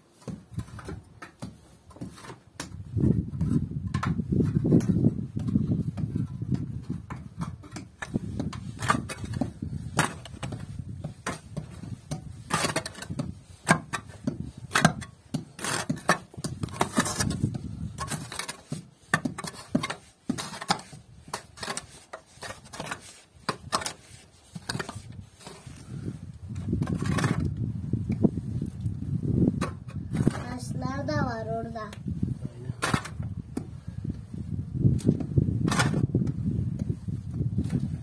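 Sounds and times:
mattock chopping stony earth: 0.2s - 25.8s, 32.7s - 33.8s, 34.9s - 38.0s.

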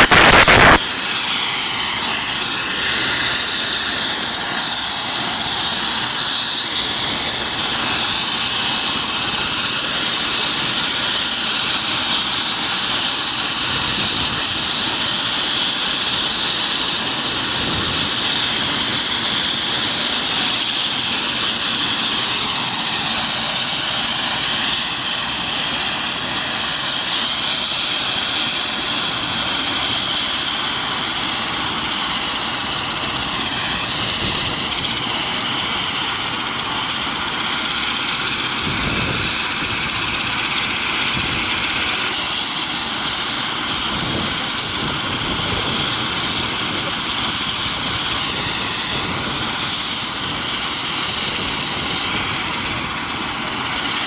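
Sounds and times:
helicopter engine whine and rotor: 0.0s - 54.0s
wind gusts on microphone: 38.5s - 40.4s.

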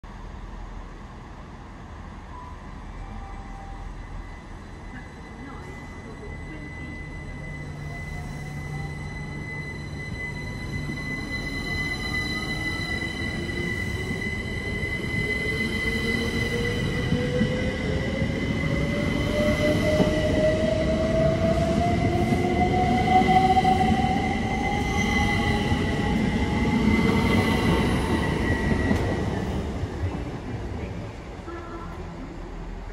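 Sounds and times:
steady high tone: 2.3s - 29.8s.

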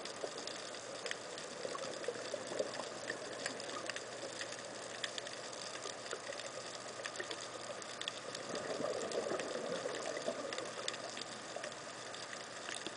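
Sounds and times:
underwater breath bubbles: 8.4s - 11.7s.

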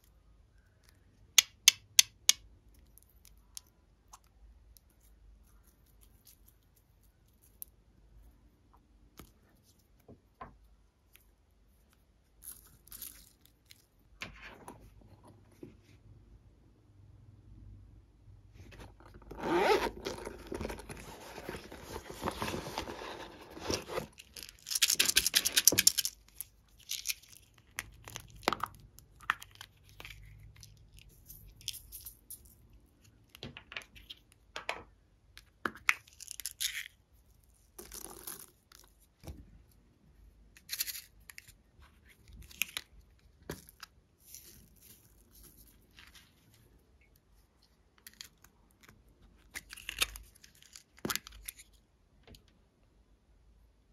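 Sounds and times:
hands squeezing silicone toy: 19.4s - 32.6s.

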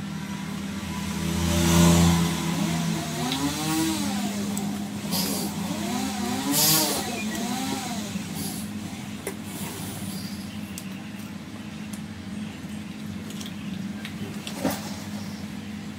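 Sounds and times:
vehicle engine revving: 0.0s - 9.2s.

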